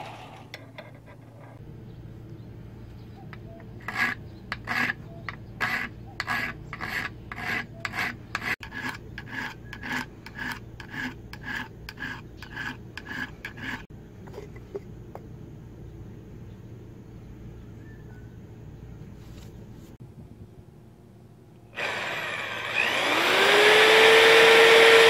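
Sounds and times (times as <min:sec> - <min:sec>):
hand file rasping on steel: 0:03.8 - 0:13.9.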